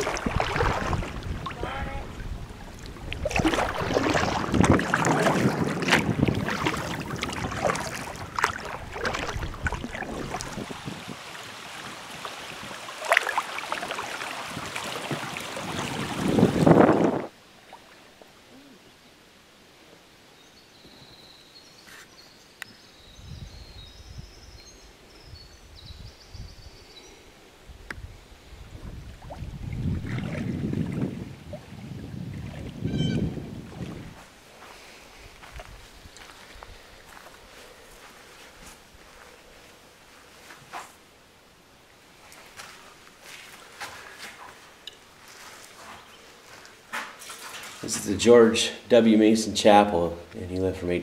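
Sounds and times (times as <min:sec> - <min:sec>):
low wind rumble: 0:00.0 - 0:12.8, 0:14.5 - 0:17.4, 0:23.0 - 0:37.8
water splashing around kayak: 0:00.0 - 0:18.3, 0:28.6 - 0:35.7.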